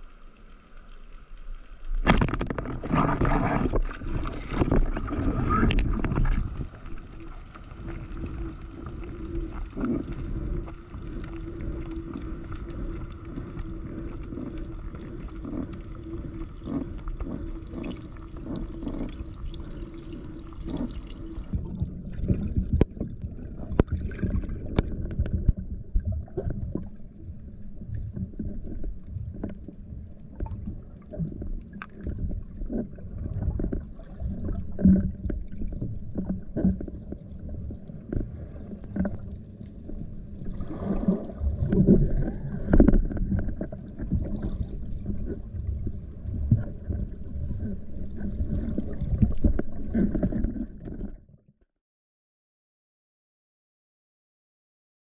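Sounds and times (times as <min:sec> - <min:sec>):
rushing water underwater: 0:00.0 - 0:51.6
water sloshing and splashing: 0:01.8 - 0:51.4
underwater knocks: 0:02.0 - 0:06.6.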